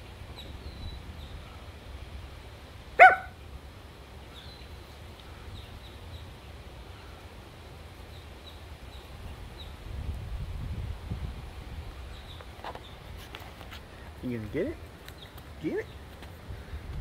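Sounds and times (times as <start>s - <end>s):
dog yipping: 3.0s - 3.4s.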